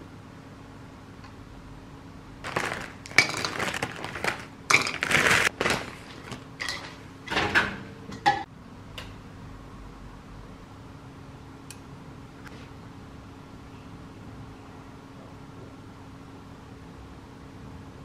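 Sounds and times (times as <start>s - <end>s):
plastic freezer bag crinkling: 2.4s - 7.0s.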